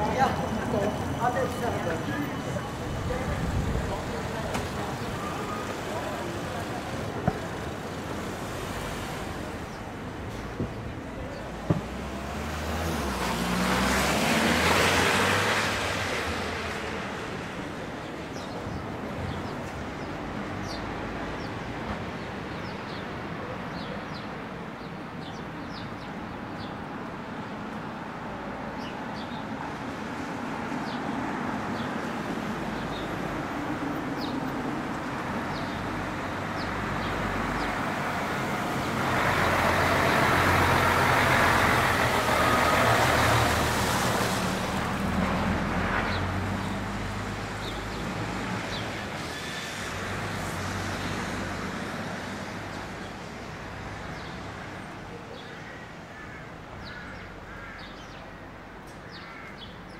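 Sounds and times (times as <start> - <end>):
street traffic hum: 0.0 - 59.9
heavy vehicle passing: 34.8 - 52.9.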